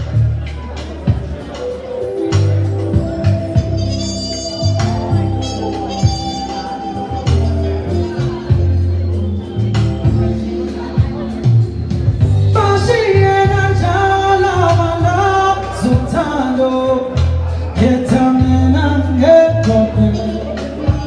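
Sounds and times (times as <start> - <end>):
musical accompaniment with bass: 0.0 - 21.0
man singing into microphone: 10.0 - 21.0.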